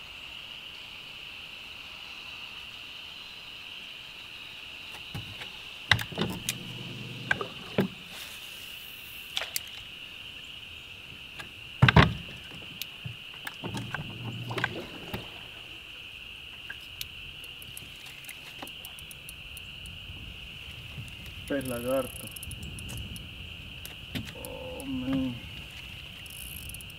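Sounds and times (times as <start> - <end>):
high insect drone: 0.0 - 26.9
fishing gear knocking against boat: 11.8 - 15.4.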